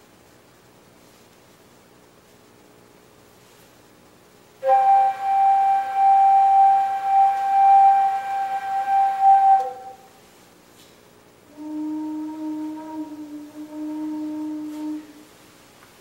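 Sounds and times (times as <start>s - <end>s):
organ pipe note: 4.6s - 10.2s, 11.5s - 15.2s.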